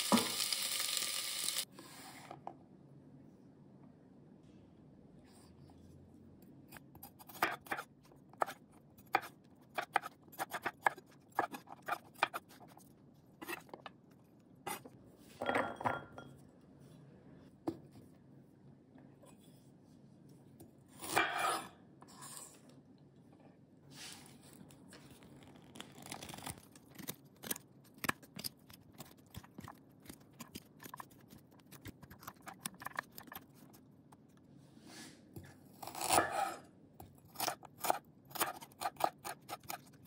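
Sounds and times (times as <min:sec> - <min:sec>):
knife scraping board: 0:13.4 - 0:13.8, 0:21.0 - 0:22.6, 0:35.9 - 0:36.6.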